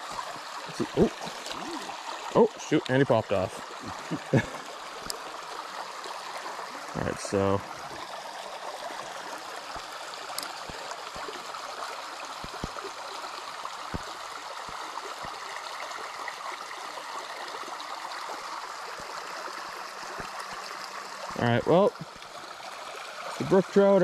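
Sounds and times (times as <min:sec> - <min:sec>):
stream running over rocks: 0:00.0 - 0:24.0.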